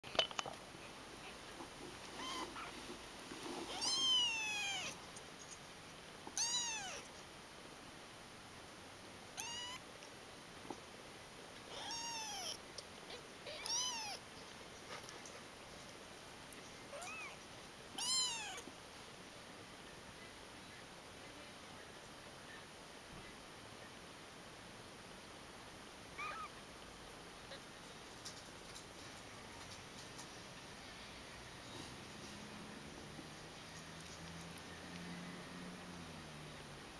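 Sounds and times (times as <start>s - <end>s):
kittens mewing: 2.2s - 2.8s, 3.7s - 5.0s, 6.4s - 7.1s, 9.4s - 9.8s, 11.7s - 14.2s, 16.9s - 18.7s, 26.2s - 26.6s.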